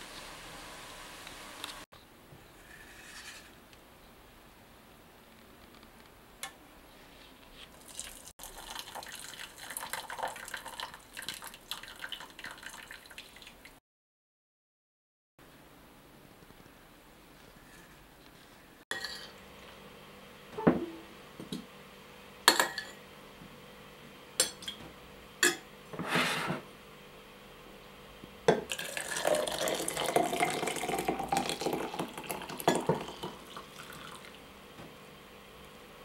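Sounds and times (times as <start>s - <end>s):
liquid pouring into glass: 7.8s - 13.6s, 28.7s - 34.4s.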